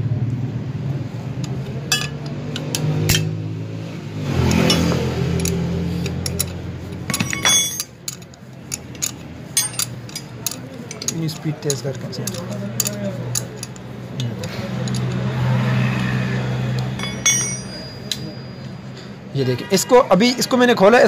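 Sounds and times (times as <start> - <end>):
spanner clinking against nuts: 1.4 - 3.4, 4.4 - 15.3, 16.6 - 19.0.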